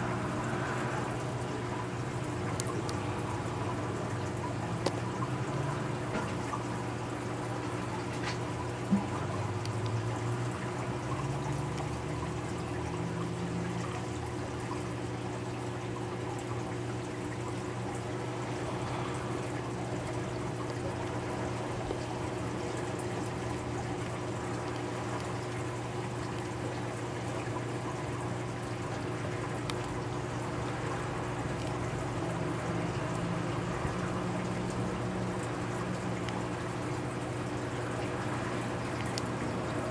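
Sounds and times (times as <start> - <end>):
constant low hum: 0.0 - 39.9
water trickling and pouring: 0.0 - 39.9.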